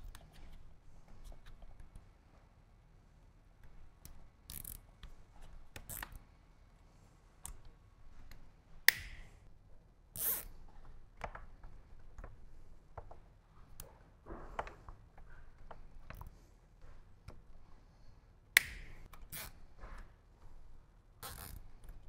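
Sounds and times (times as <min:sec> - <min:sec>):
wires and cable ties clicking: 0:03.6 - 0:06.2, 0:07.4 - 0:09.3, 0:10.2 - 0:16.3, 0:18.5 - 0:19.5.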